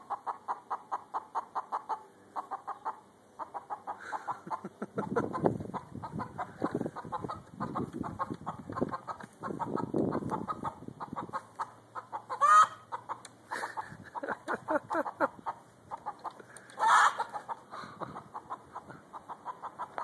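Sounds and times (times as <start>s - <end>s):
chicken clucking: 0.0s - 20.0s
chicken squawk: 8.9s - 14.0s, 15.1s - 20.0s.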